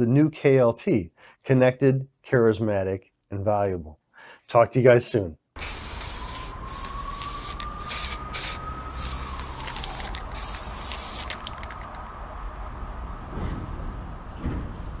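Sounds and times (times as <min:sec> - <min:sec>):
spray paint can hissing: 0:05.6 - 0:12.0.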